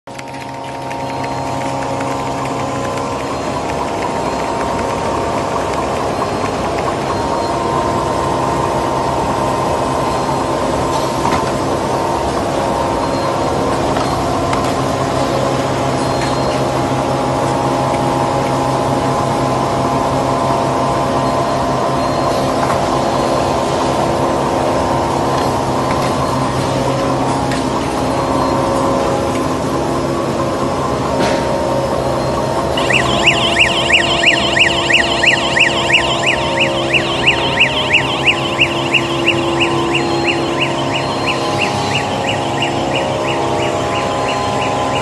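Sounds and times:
faint mechanism clicks: 0:00.1 - 0:07.2
machinery humming: 0:00.1 - 0:17.7, 0:32.4 - 0:45.0
high warbling tone: 0:32.8 - 0:45.0.

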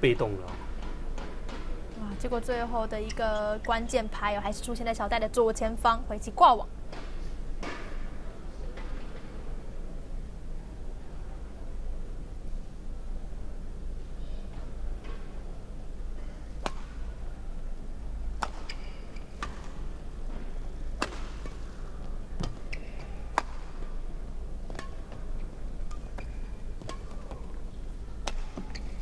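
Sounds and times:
low arena hum: 0:00.0 - 0:29.0
shoes squeaking on court: 0:02.9 - 0:04.0, 0:18.4 - 0:19.8, 0:22.4 - 0:23.3, 0:24.7 - 0:27.7, 0:28.3 - 0:29.0
rackets hitting shuttlecock: 0:16.6 - 0:17.0, 0:18.4 - 0:20.4, 0:21.0 - 0:21.8, 0:22.4 - 0:24.0, 0:24.6 - 0:27.6, 0:28.2 - 0:28.9.

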